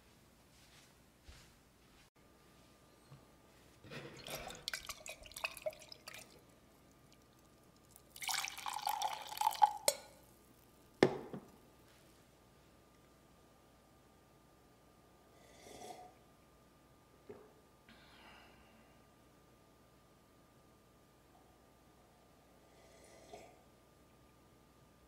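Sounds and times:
glass and ceramic clinking: 0:04.0 - 0:05.8
coffee pouring into a mug: 0:04.0 - 0:11.5.

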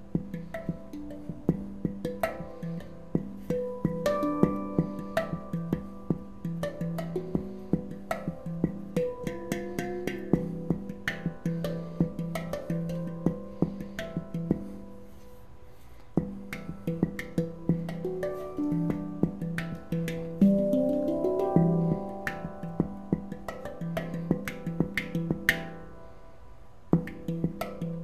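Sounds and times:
handpan notes ringing: 0:00.0 - 0:26.2, 0:27.0 - 0:28.0
sustained low handpan note: 0:02.4 - 0:15.1, 0:17.4 - 0:25.8.

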